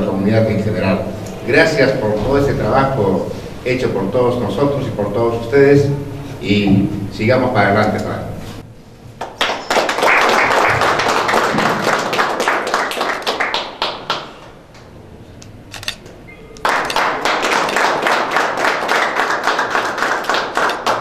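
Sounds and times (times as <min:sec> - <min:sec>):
group applauding: 0:09.2 - 0:14.5, 0:16.6 - 0:21.0.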